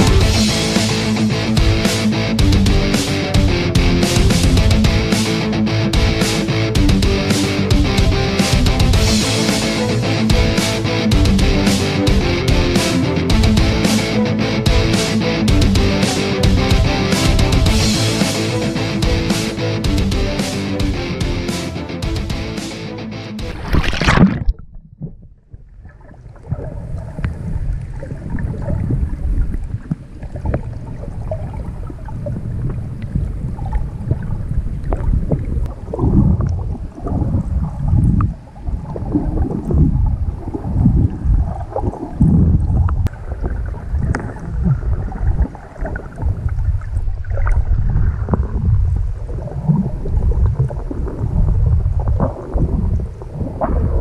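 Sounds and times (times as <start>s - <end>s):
rock music: 0.0s - 24.2s
muffled underwater sloshing: 23.5s - 54.0s.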